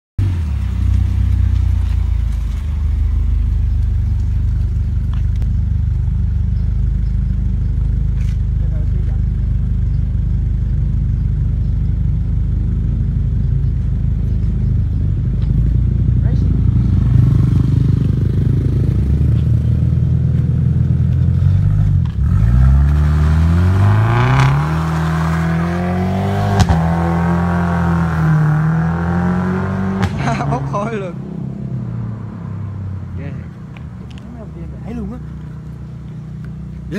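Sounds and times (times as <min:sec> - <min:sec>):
car engine idling: 0:00.2 - 0:22.2, 0:30.0 - 0:36.9.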